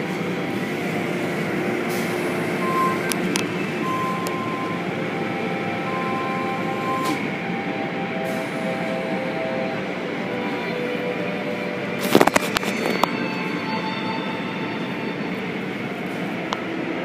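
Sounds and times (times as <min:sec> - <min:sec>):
brief steady tones: 0:02.6 - 0:07.7.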